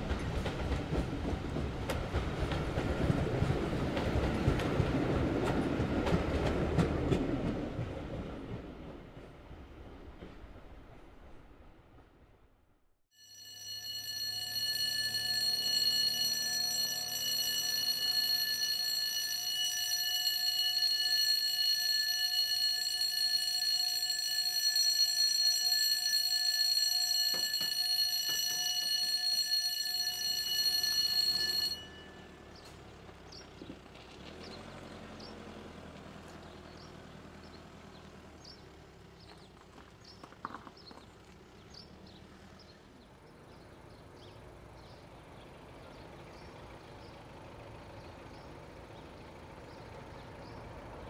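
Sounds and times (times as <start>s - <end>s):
level crossing alarm tone: 13.2s - 32.3s.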